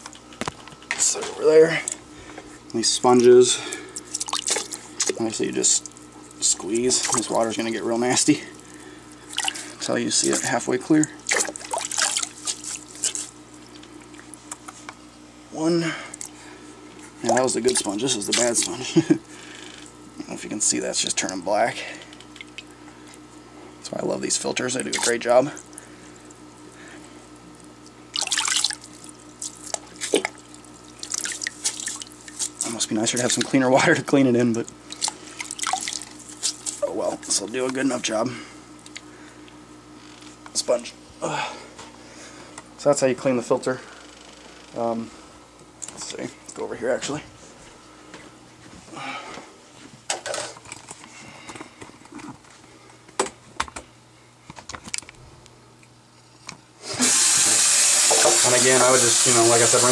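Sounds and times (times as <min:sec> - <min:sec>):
water splashing in bucket: 0:04.0 - 0:08.5, 0:09.3 - 0:14.4, 0:17.2 - 0:18.9, 0:24.6 - 0:25.9, 0:28.1 - 0:33.7, 0:34.6 - 0:37.4
water dripping: 0:04.1 - 0:05.2, 0:27.8 - 0:33.6, 0:34.9 - 0:36.2.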